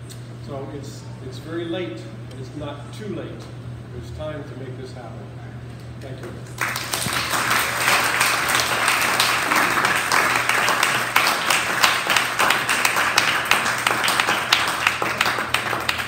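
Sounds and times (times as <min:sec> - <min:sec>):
audience applauding: 0:06.5 - 0:16.0.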